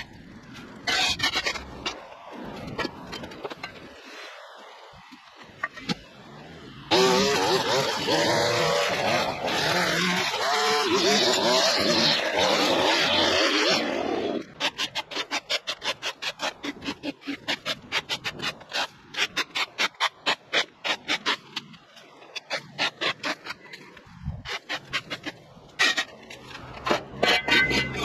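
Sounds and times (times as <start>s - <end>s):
hand tool scraping a surface: 0.0s - 4.4s, 14.6s - 28.0s.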